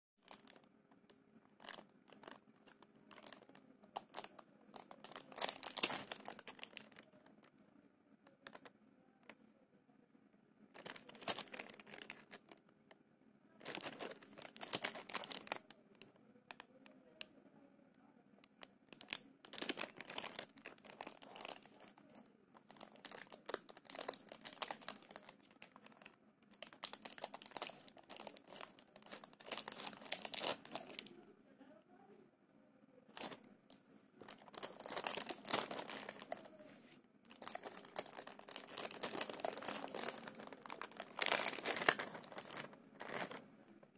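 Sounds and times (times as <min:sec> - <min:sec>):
plastic wrapper crinkling: 0:00.2 - 0:00.7, 0:01.6 - 0:07.5, 0:08.4 - 0:08.7, 0:10.8 - 0:12.7, 0:13.6 - 0:16.7, 0:18.5 - 0:31.1, 0:33.1 - 0:33.4, 0:34.2 - 0:36.6, 0:37.2 - 0:43.4.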